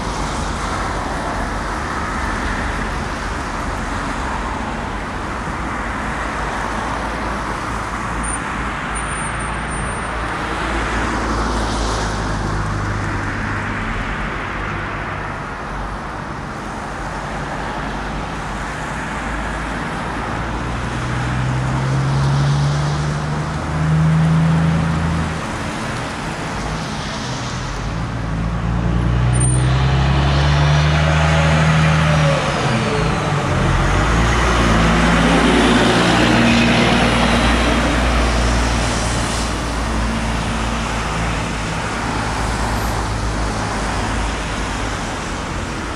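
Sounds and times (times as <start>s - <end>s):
cars passing: 0.0s - 45.9s
road traffic: 0.0s - 45.9s
truck diesel engine accelerating: 19.6s - 45.9s.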